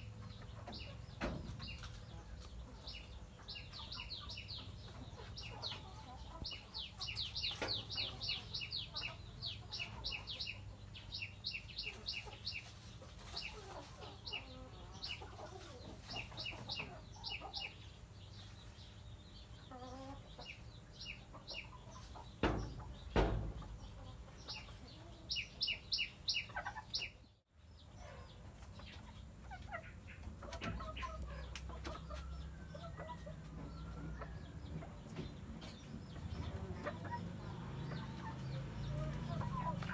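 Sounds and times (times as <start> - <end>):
hens clucking softly: 0.0 - 27.2, 27.9 - 39.9.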